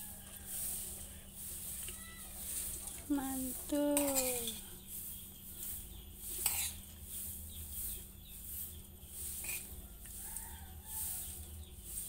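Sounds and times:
spoon scraping ceramic plate: 4.0 - 4.7, 6.4 - 6.8, 9.4 - 9.7.

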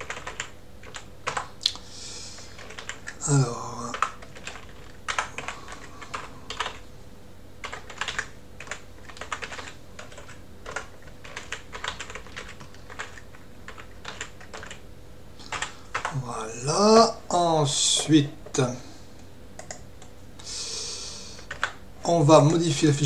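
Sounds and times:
keyboard typing clicks: 0.0 - 1.8, 3.9 - 6.8, 7.6 - 14.8, 15.4 - 16.2, 19.6 - 20.1.

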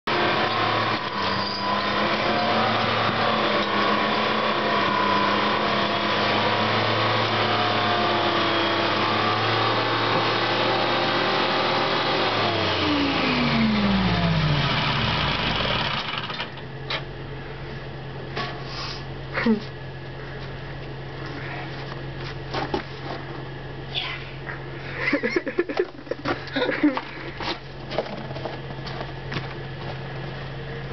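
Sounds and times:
log skidder engine running: 0.1 - 17.4.

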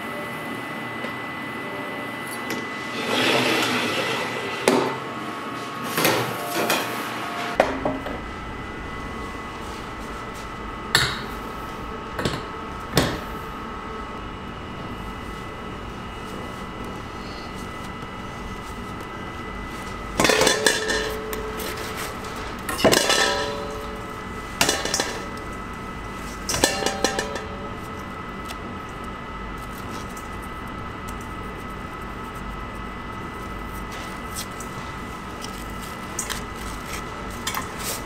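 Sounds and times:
steady high hum: 0.0 - 38.0.

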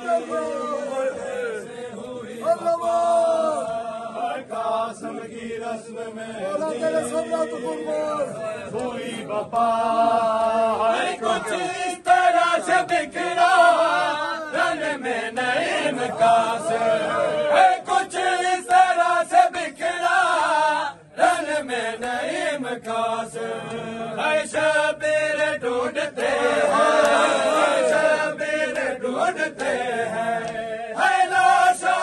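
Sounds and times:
crowd of men chanting: 0.0 - 32.0
hands slapping bare chests: 26.1 - 27.3.

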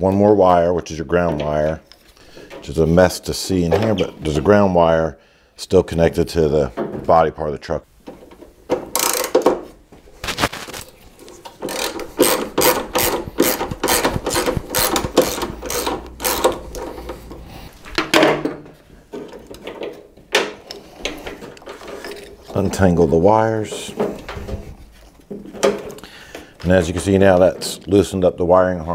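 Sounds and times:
socket ratchet clicking: 8.9 - 9.4, 11.6 - 17.5.

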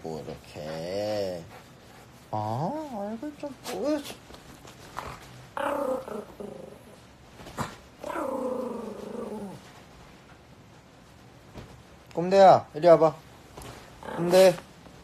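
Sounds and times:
dog growling: 4.9 - 7.0, 7.6 - 9.6, 14.0 - 14.6.

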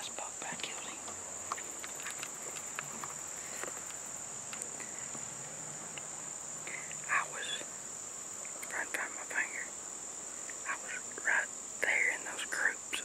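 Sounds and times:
crickets and insects chirping: 0.0 - 13.0
rustle: 0.0 - 13.0
faint ticks: 0.4 - 7.7, 8.4 - 9.5.

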